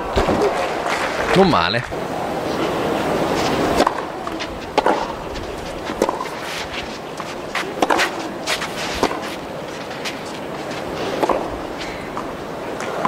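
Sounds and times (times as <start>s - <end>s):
crowd noise: 0.0s - 13.0s
tennis ball struck by rackets: 3.8s - 5.2s, 5.9s - 11.5s.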